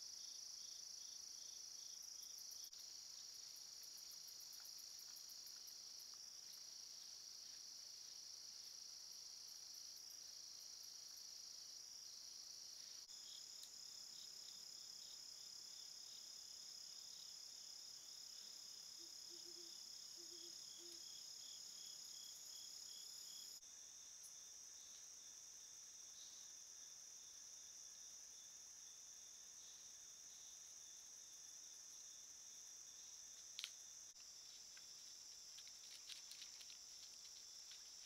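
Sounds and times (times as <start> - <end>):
crickets trilling: 18.0 - 38.0.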